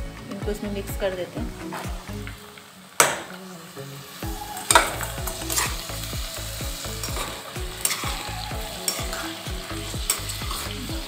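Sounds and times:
vegetables sizzling in hot oil: 0.5s - 11.0s
spatula scraping a pan: 4.7s - 5.8s, 6.9s - 8.2s.

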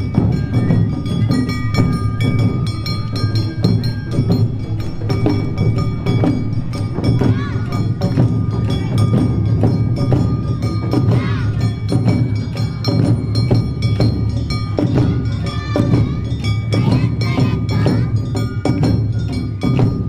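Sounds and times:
taiko drums: 0.0s - 20.0s.

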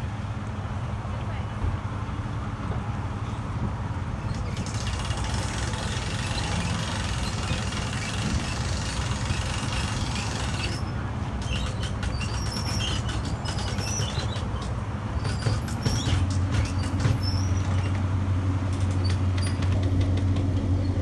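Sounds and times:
outboard motor idling: 4.6s - 10.9s.

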